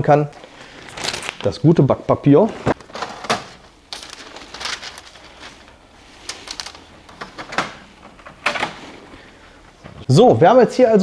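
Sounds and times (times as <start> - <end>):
faint handling noise: 2.3 - 10.1.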